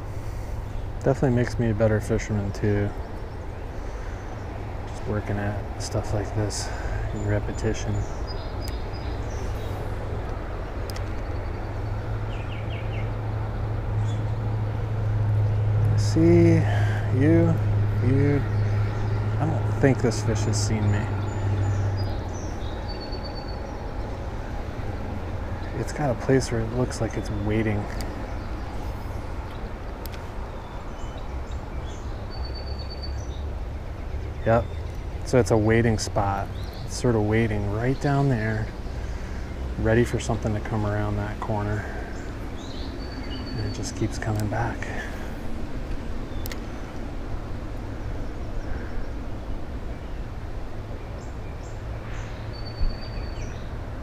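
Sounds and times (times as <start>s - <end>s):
bird chirps: 2.2s - 10.0s, 15.4s - 24.6s, 25.2s - 45.4s, 50.9s - 53.8s
faint click: 45.9s - 46.6s.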